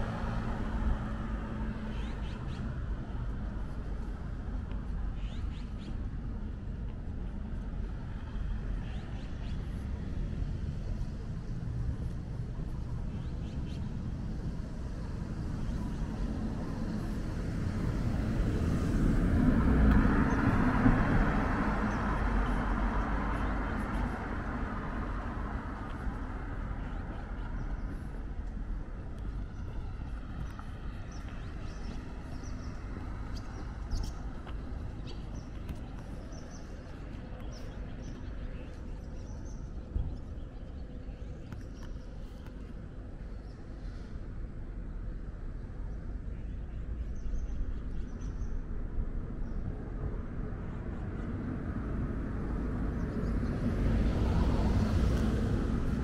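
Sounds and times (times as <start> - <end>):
road vehicle passing by: 0.0 - 45.8, 47.3 - 56.0
steady low rumble: 0.0 - 56.0.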